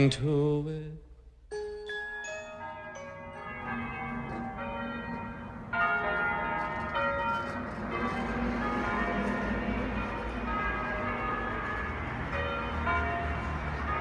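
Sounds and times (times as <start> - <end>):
soft chime-like notes: 1.5 - 5.6
church bells pealing: 1.9 - 14.0.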